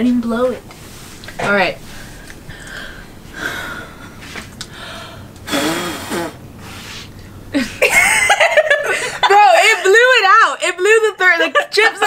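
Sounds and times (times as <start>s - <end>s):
person blowing out candles: 5.4s - 7.1s.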